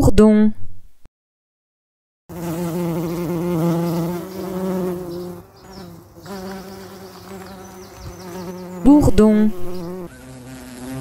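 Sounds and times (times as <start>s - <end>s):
bumblebee buzzing in flight: 2.3s - 11.0s.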